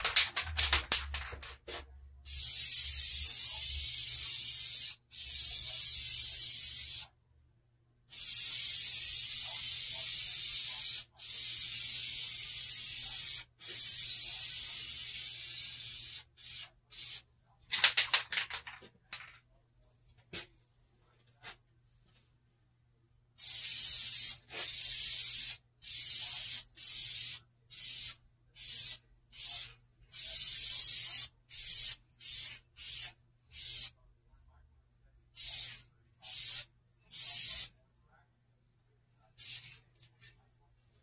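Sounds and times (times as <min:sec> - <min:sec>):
spray can ball rattling: 0:00.0 - 0:07.0, 0:08.1 - 0:19.4, 0:23.4 - 0:33.9, 0:35.4 - 0:37.7, 0:39.4 - 0:40.3
aerosol spray hiss: 0:02.3 - 0:07.1, 0:08.1 - 0:17.2, 0:23.4 - 0:33.9, 0:35.4 - 0:37.7.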